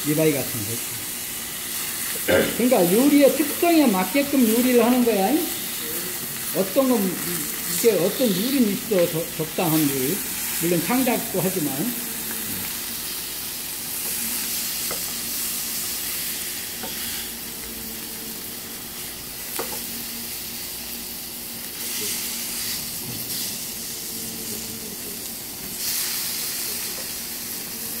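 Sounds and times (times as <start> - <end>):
meat sizzling in a frying pan: 0.0 - 28.0
chopsticks tapping a pan: 14.8 - 15.2, 19.5 - 19.9.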